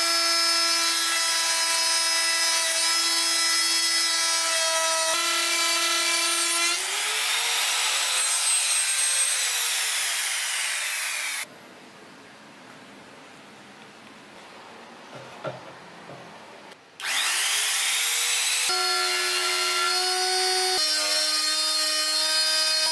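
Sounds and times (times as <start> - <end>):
router motor whine: 17.0 - 22.5.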